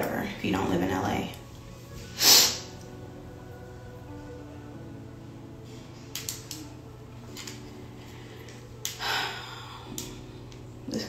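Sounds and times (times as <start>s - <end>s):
hair crimper plates clicking: 6.1s - 6.8s, 8.4s - 9.0s.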